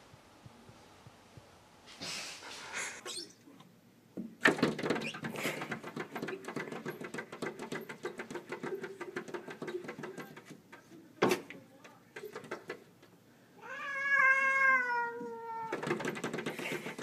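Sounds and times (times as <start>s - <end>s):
paws scratching glass door: 4.4s - 10.6s, 12.2s - 12.9s, 15.7s - 17.0s.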